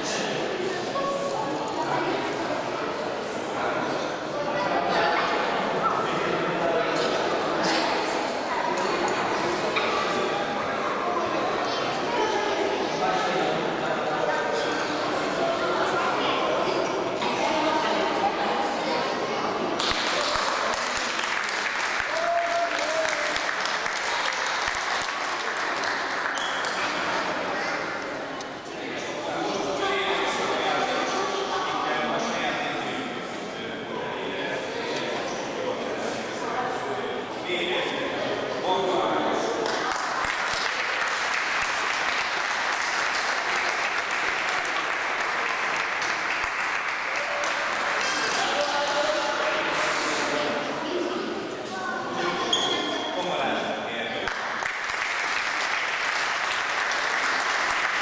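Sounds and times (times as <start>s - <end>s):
people clapping: 19.7s - 27.4s, 39.6s - 50.3s, 54.2s - 58.0s
crowd applauding: 19.8s - 27.1s, 39.7s - 49.2s, 54.3s - 58.0s.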